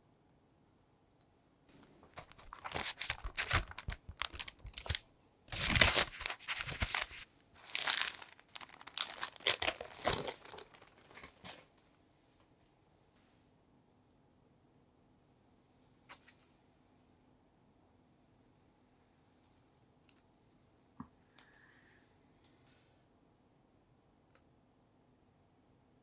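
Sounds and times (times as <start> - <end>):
baking paper crinkling: 2.0 - 11.8.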